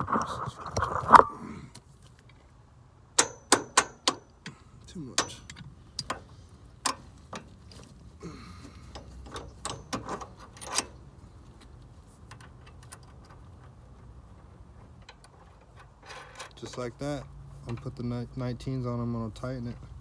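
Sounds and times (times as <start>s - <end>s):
bolt and nut clinking: 3.2s - 7.8s, 8.9s - 13.9s, 15.0s - 16.9s.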